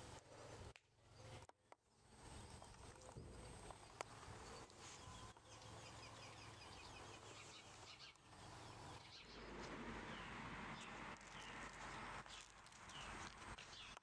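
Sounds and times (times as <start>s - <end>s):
faint birds chirping: 0.0s - 14.0s.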